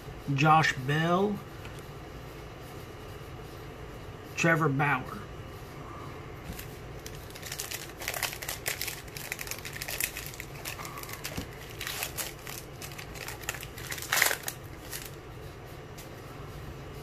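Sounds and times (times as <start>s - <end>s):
wrapper tearing and crinkling: 6.5s - 15.2s.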